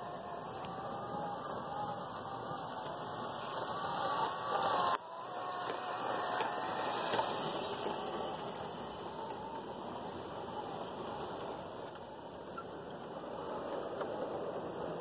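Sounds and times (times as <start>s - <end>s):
model train wheels whirring on track: 0.0s - 15.0s
small clicks: 2.5s - 10.4s.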